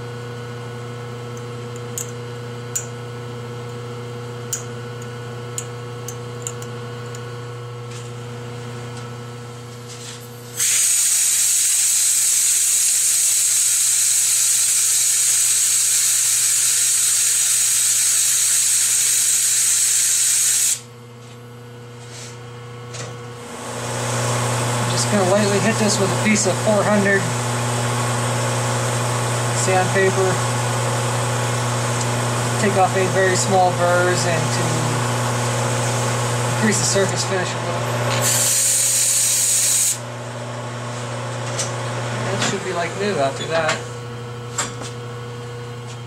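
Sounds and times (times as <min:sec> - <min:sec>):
compressed air hissing: 0:10.6 - 0:20.8, 0:38.2 - 0:40.0.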